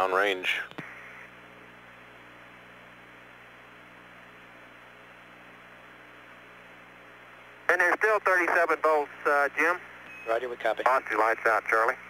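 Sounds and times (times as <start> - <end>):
radio hiss: 0.0 - 1.5, 7.7 - 12.0.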